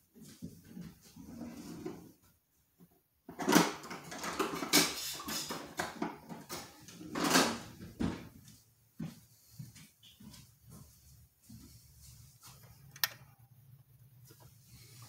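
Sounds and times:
kitchen knocks and scrapes: 3.3 - 8.3.

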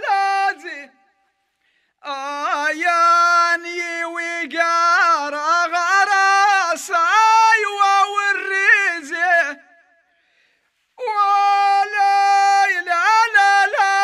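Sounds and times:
person singing ornamented melody: 11.0 - 14.0.

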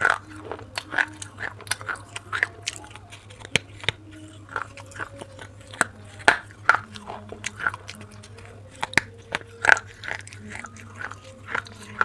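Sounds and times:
crunching clay chewing: 0.0 - 12.0.

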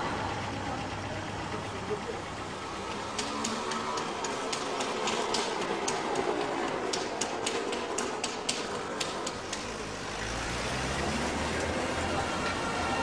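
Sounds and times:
background murmur: 0.0 - 13.0
sharp clicks: 2.9 - 9.8.

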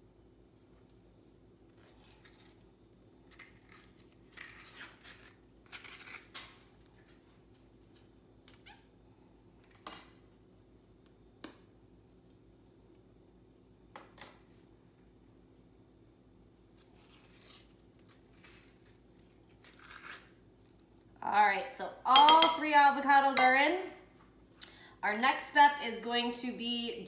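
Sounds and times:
spoon scraping avocado: 3.7 - 6.4
spoon clinking on glass bowl: 22.1 - 22.7.

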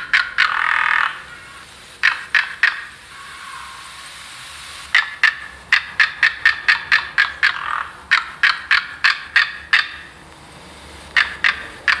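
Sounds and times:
sharp clicking chirps: 11.2 - 12.0.

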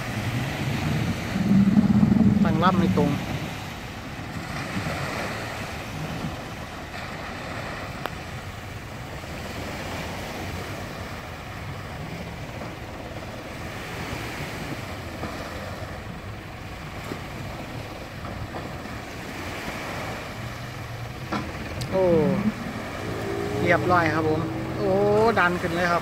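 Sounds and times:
low engine running: 0.0 - 4.1, 20.1 - 26.0
wind buffeting microphone: 0.0 - 6.9, 7.9 - 26.0
small waves washing up a ramp: 0.0 - 26.0.

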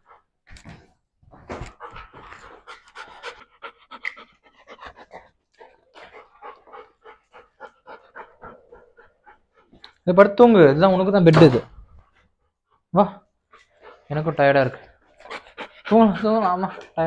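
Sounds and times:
dog panting hard: 1.4 - 10.0, 13.5 - 17.0.

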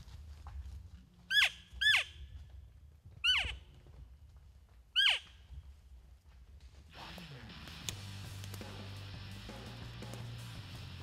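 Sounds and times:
elk squealing: 1.3 - 2.2, 3.2 - 3.6, 4.9 - 5.3.

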